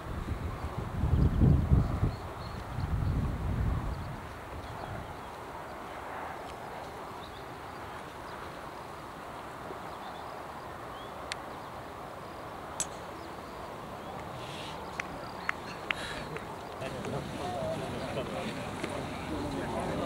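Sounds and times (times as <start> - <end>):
quiet waiting crowd: 14.1 - 20.0
faint even hiss: 14.2 - 15.0.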